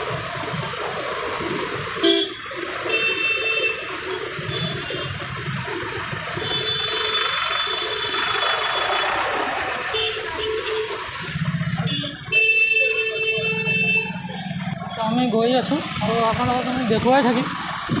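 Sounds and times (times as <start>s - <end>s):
motorcycle engine: 0.0s - 18.0s
street traffic: 0.0s - 18.0s
vehicle horns honking: 2.0s - 5.2s, 6.4s - 9.1s, 9.8s - 15.3s.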